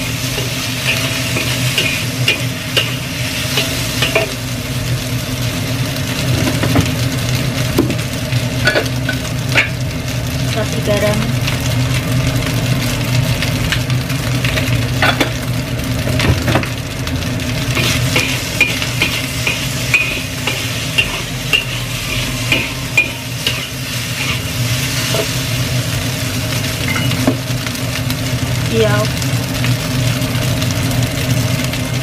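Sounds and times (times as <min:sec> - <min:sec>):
frying sizzle: 0:00.0 - 0:32.0
low hum: 0:17.5 - 0:26.1
spatula scraping rice in a wok: 0:17.8 - 0:25.3.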